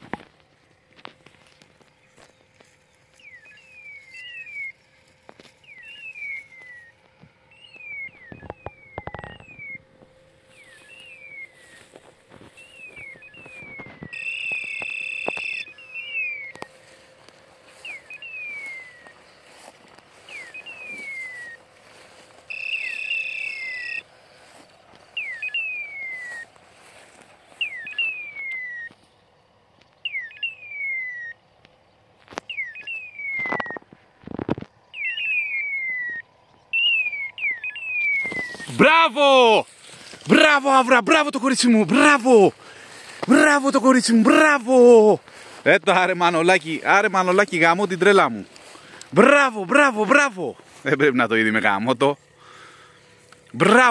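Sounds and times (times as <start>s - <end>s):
bird-like chirping call: 3.1s - 24.1s, 25.1s - 26.6s, 27.4s - 29.0s, 30.0s - 31.5s, 32.4s - 33.8s, 34.8s - 39.6s
electronic beep: 7.7s - 9.9s, 12.7s - 16.8s, 22.5s - 24.0s.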